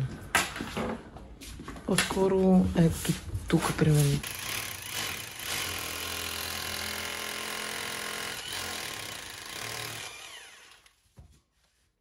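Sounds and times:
hammer drill boring into wall: 0:04.2 - 0:11.0.

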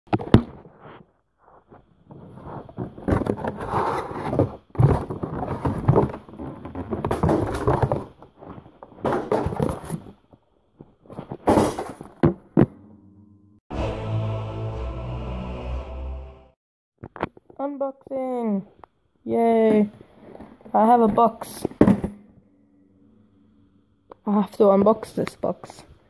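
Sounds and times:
rustling and clattering: 0:00.1 - 0:12.7.

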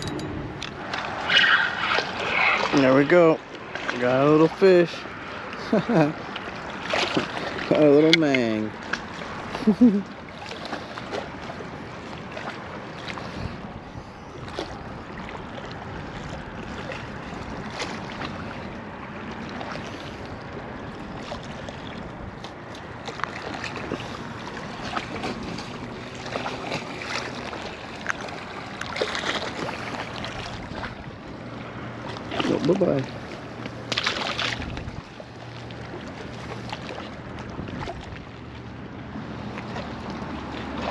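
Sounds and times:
wind on microphone: 0:34.4 - 0:35.2, 0:37.4 - 0:38.3.

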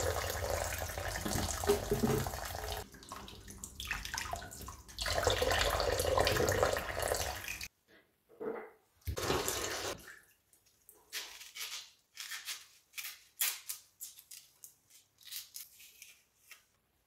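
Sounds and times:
tap water rushing: 0:00.0 - 0:02.8
knife scraping onion skin: 0:11.1 - 0:16.8.

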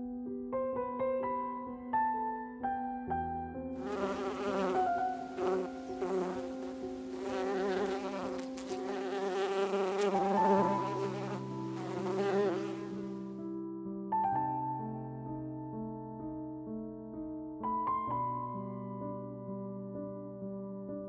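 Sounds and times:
soft piano notes: 0:00.0 - 0:21.0
bees buzzing: 0:03.8 - 0:13.2.

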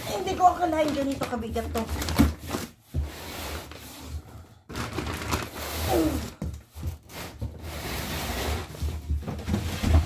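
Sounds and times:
plastic wrapping crinkling: 0:00.0 - 0:02.8, 0:04.7 - 0:07.1.

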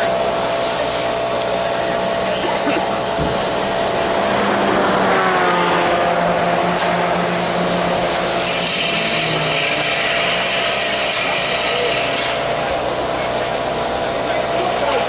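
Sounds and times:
pneumatic equipment hissing: 0:00.0 - 0:04.2, 0:06.8 - 0:13.8.

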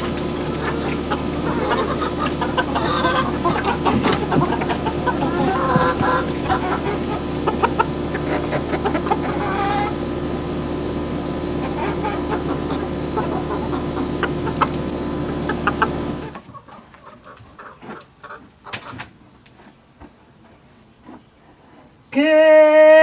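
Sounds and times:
steady hum: 0:00.0 - 0:16.5
chickens clucking: 0:00.0 - 0:21.9.

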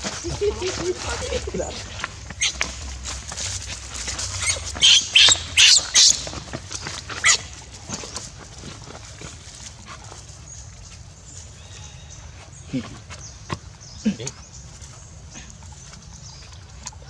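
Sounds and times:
baby monkey screaming: 0:04.4 - 0:06.2.

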